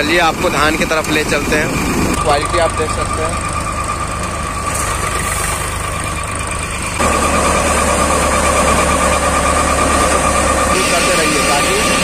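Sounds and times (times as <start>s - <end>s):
thresher drum whine: 0.0s - 12.0s
tractor engine low drone: 0.0s - 12.0s.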